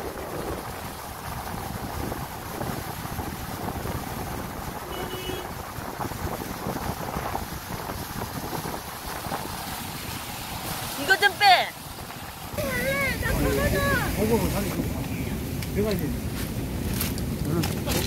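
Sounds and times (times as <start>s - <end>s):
small waves on pebble shore: 0.0s - 15.6s
wind buffeting microphone: 0.0s - 18.0s.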